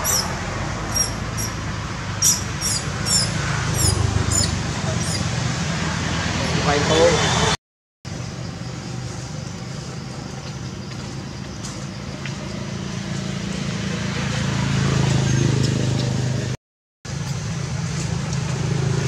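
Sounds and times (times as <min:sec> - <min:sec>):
outdoor background noise: 0:00.0 - 0:19.0
vehicle engine hum: 0:00.0 - 0:19.0.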